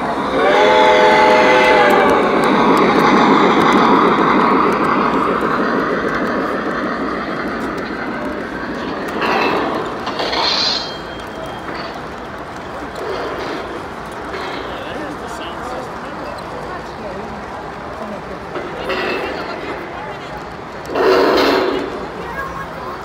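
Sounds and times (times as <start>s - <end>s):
model train wheels rumbling: 0.0s - 23.0s
locomotive chord whistle: 0.1s - 2.6s.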